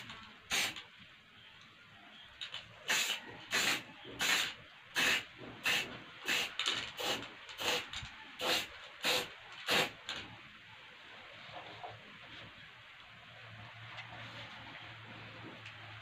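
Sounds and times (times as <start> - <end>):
spray paint can hissing: 0.0 - 0.8, 2.8 - 10.2.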